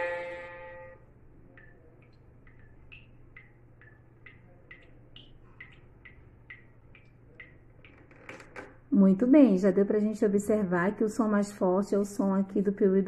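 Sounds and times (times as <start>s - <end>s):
water dripping from a tap: 1.4s - 8.3s.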